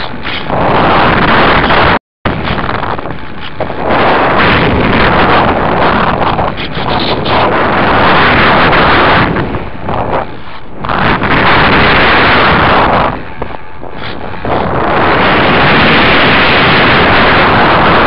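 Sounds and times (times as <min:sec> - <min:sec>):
wind rushing over microphone: 0:00.0 - 0:18.0.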